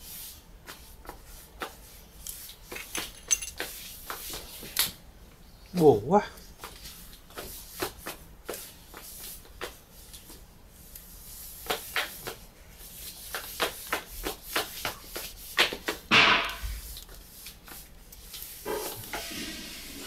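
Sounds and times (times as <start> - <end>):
rustling noise: 6.6 - 20.0.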